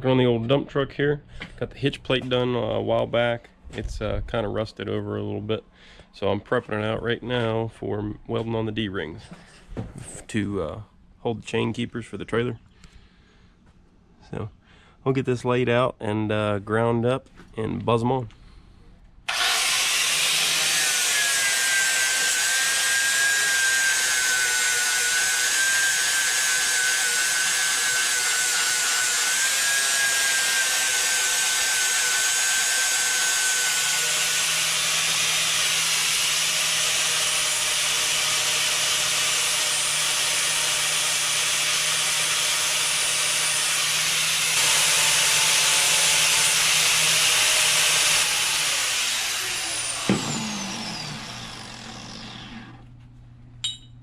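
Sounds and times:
angle grinder grinding metal: 0:19.3 - 0:52.8.

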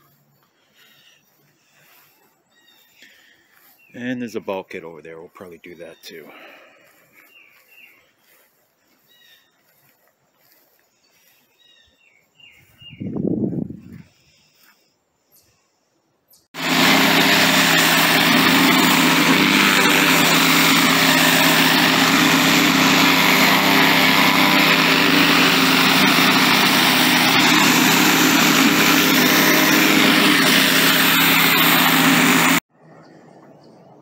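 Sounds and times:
pressure washer drone: 0:16.6 - 0:32.6.

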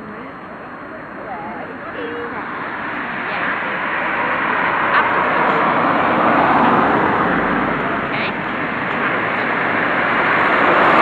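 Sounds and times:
people talking: 0:00.0 - 0:09.8
tyres hissing on wet road: 0:02.6 - 0:11.0.

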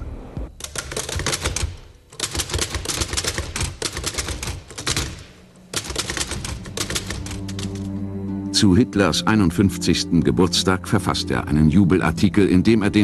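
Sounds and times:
manual typewriter typing: 0:00.6 - 0:07.9.

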